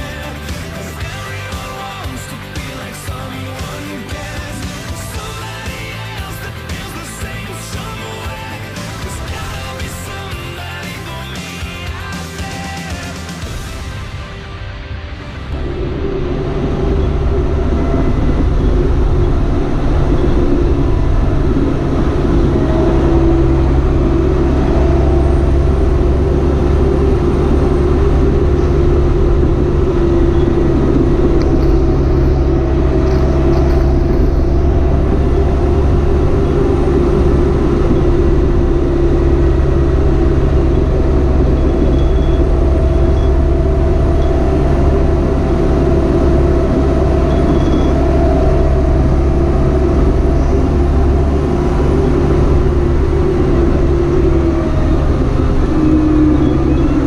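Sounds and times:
tractor diesel engine droning: 0.0s - 57.0s.

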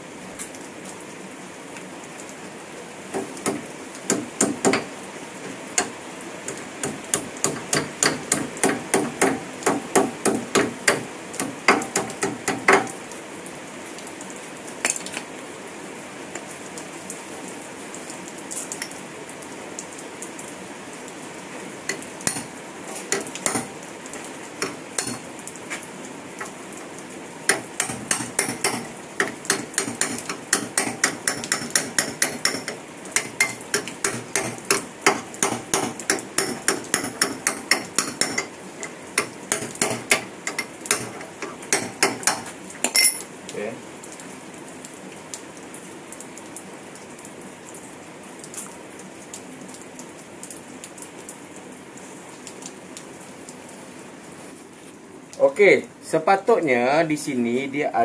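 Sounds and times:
hammer tapping metal: 3.2s - 4.9s, 6.5s - 13.0s, 21.9s - 23.8s, 24.6s - 25.2s, 27.5s - 43.3s.

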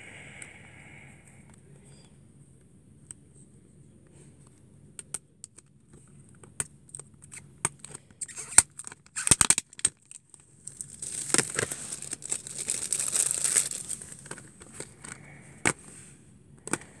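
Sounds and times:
plastic clicks and snaps: 5.0s - 5.7s
plastic wrapping crinkling: 7.2s - 15.2s.

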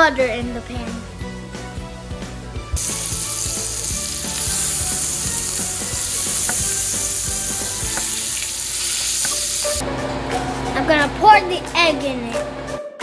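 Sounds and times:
butter sizzling in a pan: 2.8s - 9.8s.

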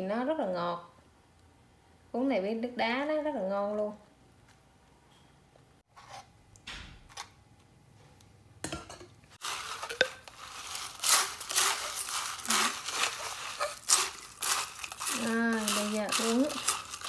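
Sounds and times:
ice rattling in plastic cup: 9.4s - 17.0s.

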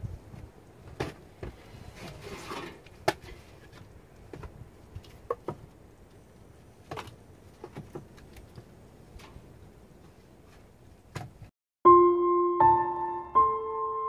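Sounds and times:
rustling scrape of wood: 1.1s - 5.4s
firewood logs clacking: 2.4s - 6.2s.

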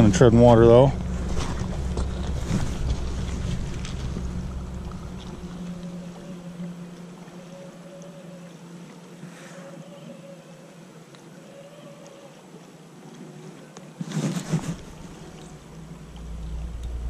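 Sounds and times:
wind rumbling on microphone: 0.0s - 7.1s, 14.4s - 17.0s
river flowing: 0.0s - 9.8s, 14.5s - 17.0s.

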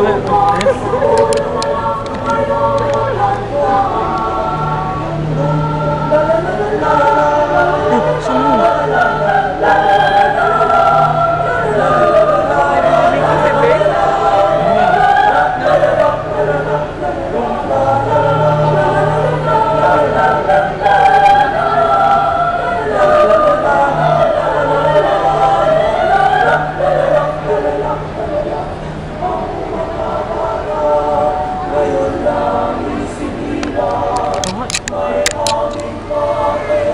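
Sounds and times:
mixed choir singing unaccompanied: 0.0s - 36.9s.

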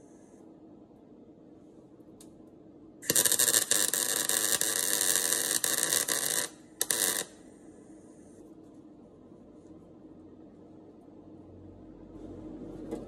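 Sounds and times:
welding arc crackling: 3.0s - 7.4s.

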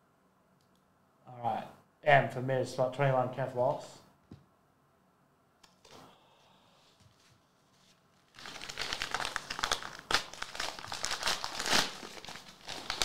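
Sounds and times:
paper wrapping tearing and crumpling: 7.8s - 13.0s.

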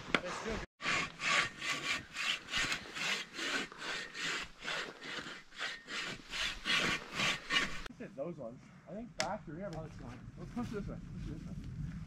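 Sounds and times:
hand saw cutting wood: 0.8s - 7.9s.

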